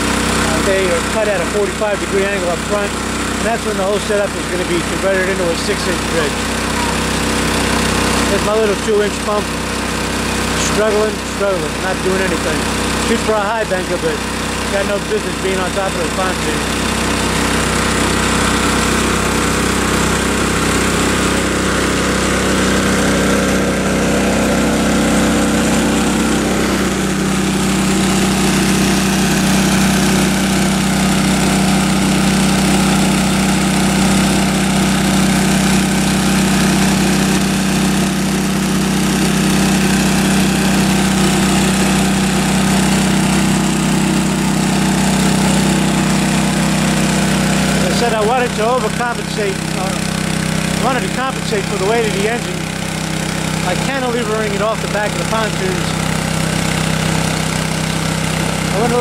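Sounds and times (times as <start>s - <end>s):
small water pump engine running: 0.0s - 59.0s.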